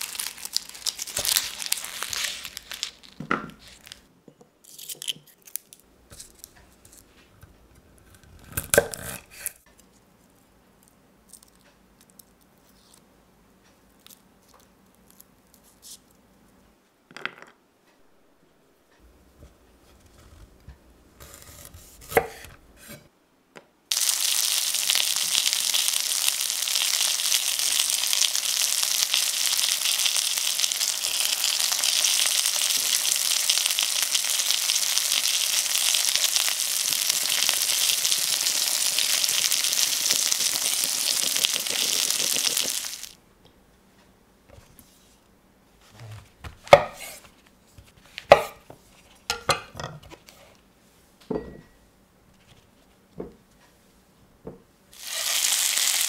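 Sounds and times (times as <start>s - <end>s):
chicken sizzling in oil: 23.9s - 43.2s, 55.0s - 56.0s.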